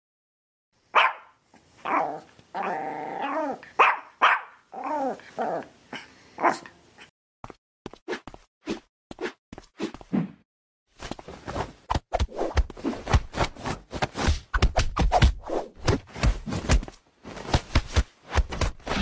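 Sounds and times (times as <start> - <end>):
dog barking: 0.9 - 2.3, 3.7 - 4.6, 6.4 - 6.8.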